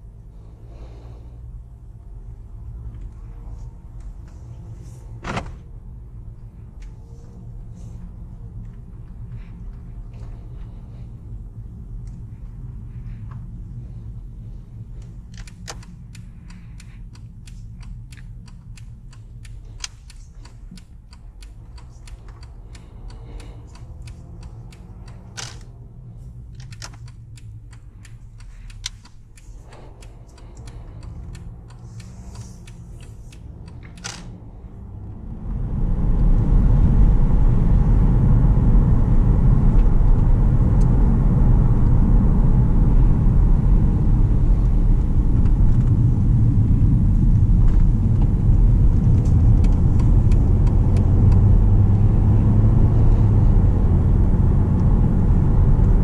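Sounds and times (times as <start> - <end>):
car driving rumble: 0.0 - 56.0
diesel engine rumble: 0.0 - 56.0
light clicks and ticks: 6.3 - 35.6, 47.0 - 54.0.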